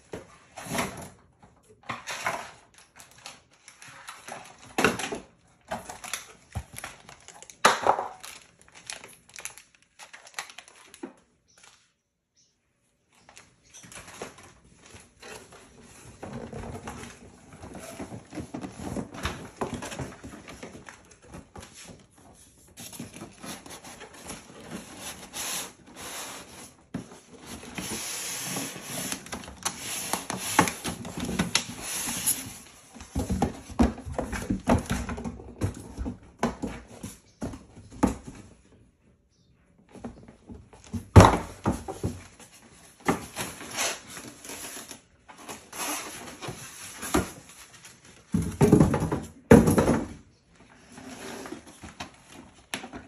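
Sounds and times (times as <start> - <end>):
cardboard and foam packing scraping: 14.0 - 35.4, 41.0 - 48.8, 50.8 - 53.0.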